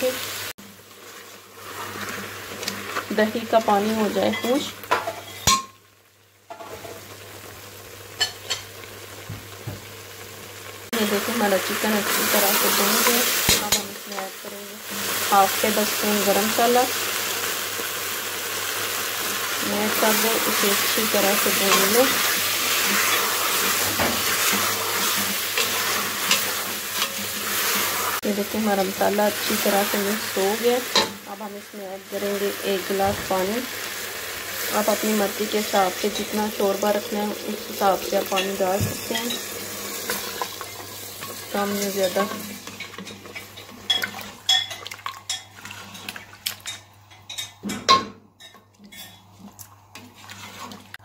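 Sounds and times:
chicken and potatoes sizzling: 0.0s - 47.6s, 48.5s - 51.0s
spatula scraping metal pot: 19.9s - 28.2s, 49.9s - 51.0s.

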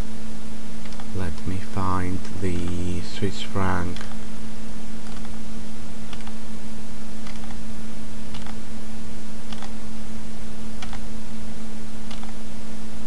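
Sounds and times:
low electrical hum and hiss: 0.0s - 13.0s
computer clicks: 0.8s - 1.5s, 5.0s - 5.4s, 6.1s - 6.4s, 7.2s - 7.6s, 8.3s - 8.6s, 9.5s - 9.8s, 10.8s - 11.1s, 12.1s - 12.4s.

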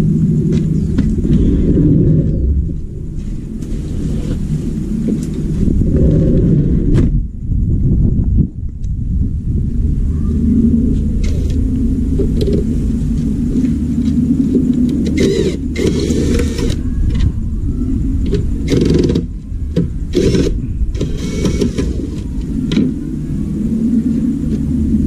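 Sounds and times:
steady low rumble: 0.0s - 25.0s
cordless drill whirring: 15.2s - 16.8s, 20.2s - 22.0s.

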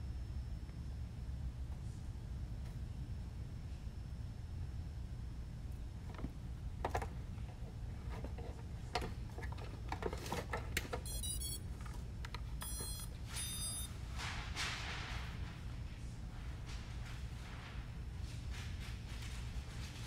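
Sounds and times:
motor power-up beeps: 11.1s - 11.6s, 12.6s - 13.9s.

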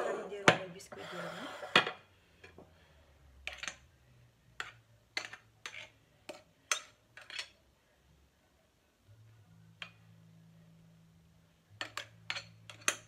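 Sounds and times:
metal spoon clinking glass bowl: 11.8s - 13.0s.

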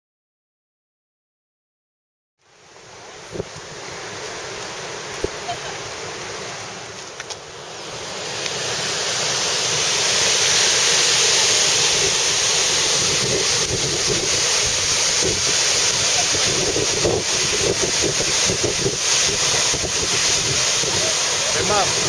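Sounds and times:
waterfall roaring: 2.7s - 22.0s
wind buffeting microphone: 11.6s - 22.0s.

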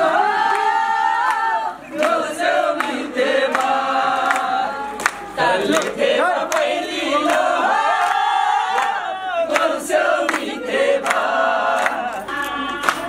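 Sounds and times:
group singing in unison: 0.0s - 13.0s
hand claps: 0.5s - 13.0s.

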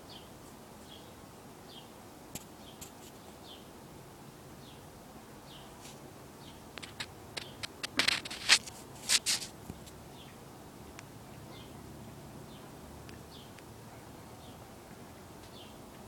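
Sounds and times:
rustles and clicks: 6.7s - 10.0s.

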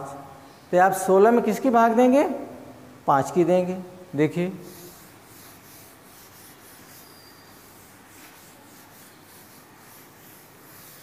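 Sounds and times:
cloth wiping chalkboard: 4.6s - 11.0s.

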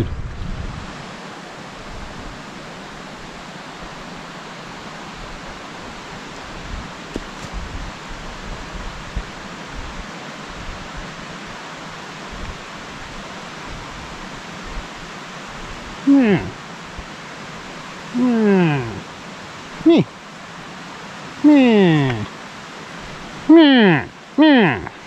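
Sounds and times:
wind rumble on microphone: 0.0s - 1.1s, 6.4s - 11.6s
stream rushing: 0.4s - 25.0s.

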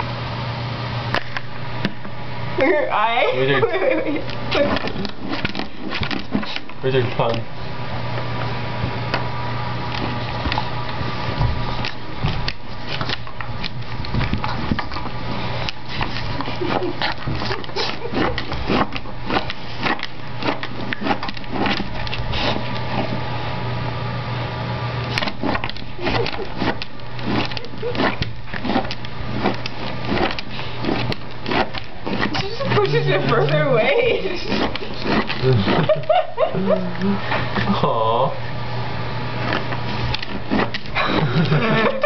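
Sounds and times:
steady low hum: 0.0s - 42.0s
dog claws scratching on tile floor: 4.3s - 7.4s, 9.9s - 23.2s, 25.0s - 36.2s, 39.4s - 41.6s.

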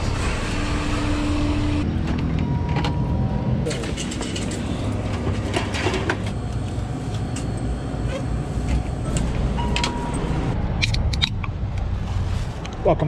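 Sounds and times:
door beep: 9.1s - 10.5s.

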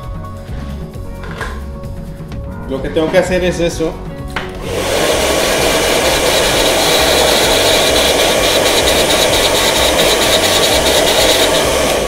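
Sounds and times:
hair dryer blowing: 4.4s - 12.0s.

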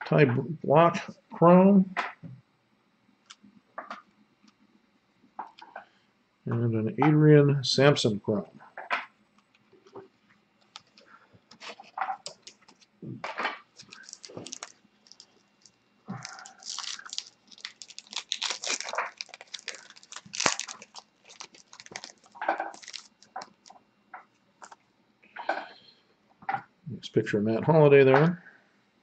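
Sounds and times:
trading cards rustling and clicking: 10.6s - 12.9s, 13.7s - 23.8s.

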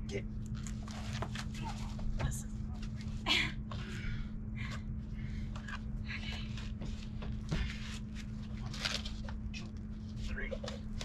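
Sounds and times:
steady low hum: 0.0s - 11.0s
people breathing with effort: 3.2s - 8.2s.

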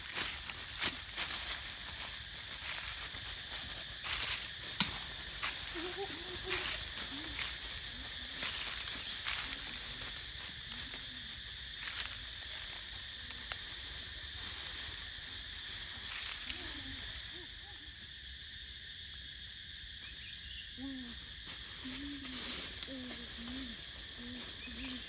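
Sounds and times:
high insect drone: 0.0s - 25.0s
bird cooing: 21.9s - 25.0s.

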